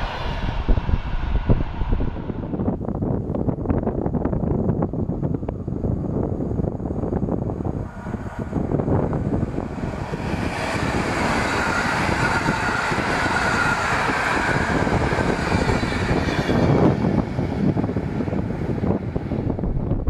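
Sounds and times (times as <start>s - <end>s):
train wheels clattering on rails: 9.5s - 19.3s.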